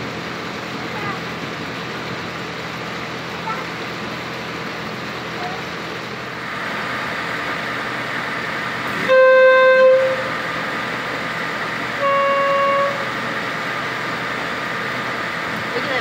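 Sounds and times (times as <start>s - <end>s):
boat motor drone: 0.0s - 16.0s
boat horn blasts: 9.0s - 10.5s, 12.0s - 13.2s.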